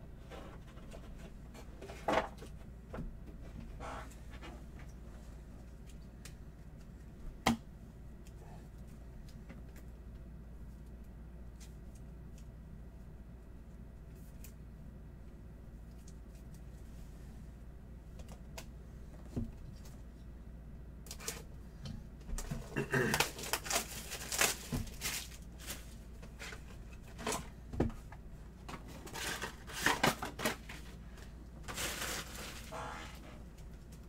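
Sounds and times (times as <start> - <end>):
trading cards and wrappers rustling: 23.1 - 27.3, 31.6 - 33.2.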